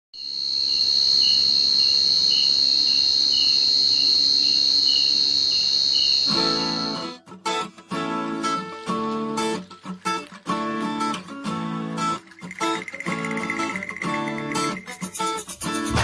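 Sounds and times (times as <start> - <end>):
crickets trilling: 0.2 - 7.1, 12.2 - 15.6
acoustic guitar strumming: 0.8 - 16.0.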